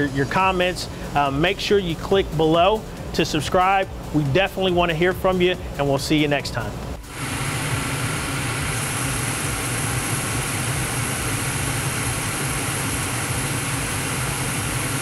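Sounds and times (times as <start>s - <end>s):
gas furnace running: 0.0s - 6.0s, 6.8s - 15.0s.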